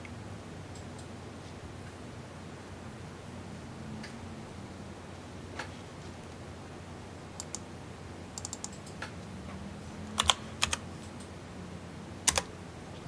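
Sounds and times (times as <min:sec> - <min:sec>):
computer keyboard typing: 0:07.4 - 0:07.6, 0:08.4 - 0:09.0, 0:10.1 - 0:11.3, 0:12.3 - 0:12.5.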